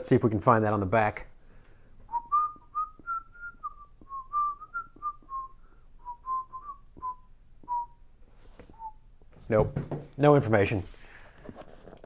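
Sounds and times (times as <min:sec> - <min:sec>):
man whistling a tune: 0:02.1 - 0:08.0, 0:08.7 - 0:09.0.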